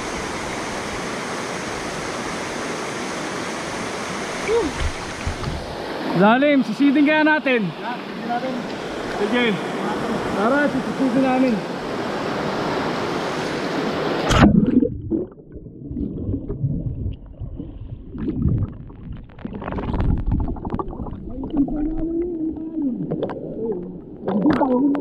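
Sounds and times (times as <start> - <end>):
waterfall rushing: 0.0 - 14.4
muffled underwater gurgling: 14.3 - 25.0.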